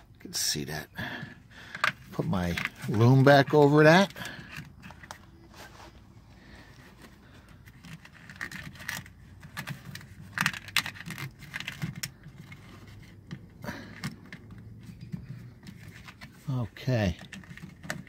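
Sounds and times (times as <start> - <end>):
plastic loom rustling and clicking: 7.6 - 18.0.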